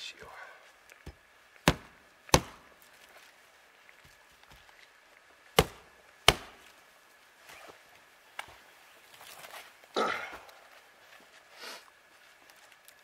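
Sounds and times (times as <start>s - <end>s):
blade chopping into wood: 1.6s - 2.7s, 5.6s - 6.7s.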